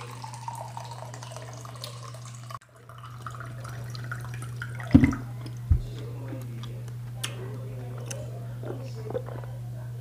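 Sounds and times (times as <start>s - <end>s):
water pouring into plastic cup: 0.0s - 5.6s
water dripping: 0.0s - 5.8s.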